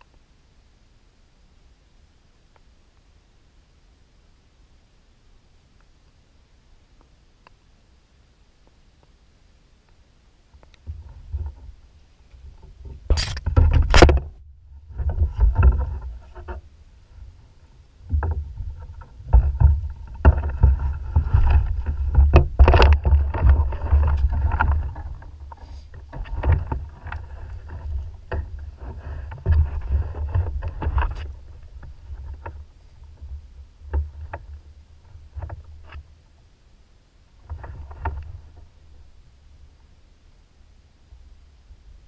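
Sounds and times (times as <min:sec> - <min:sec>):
heavy rumble: 0:11.0 - 0:35.9.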